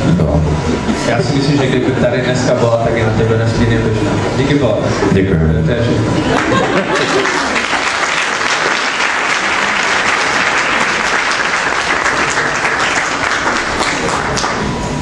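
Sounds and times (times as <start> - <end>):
audience applauding: 6.3 - 14.8.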